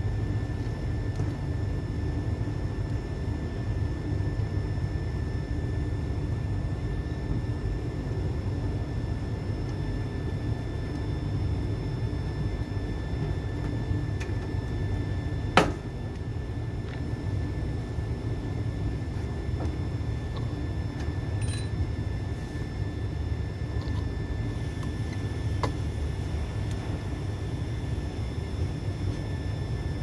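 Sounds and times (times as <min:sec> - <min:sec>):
faint high whine: 0:19.9 - 0:30.0
sharp metal clink: 0:21.4 - 0:21.8.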